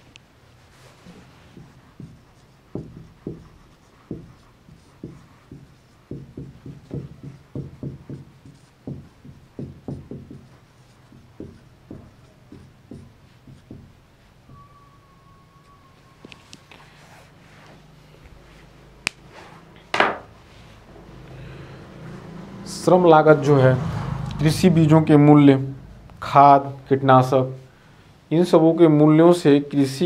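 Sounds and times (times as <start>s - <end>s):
chalk tapping and scraping: 0.6s - 14.7s.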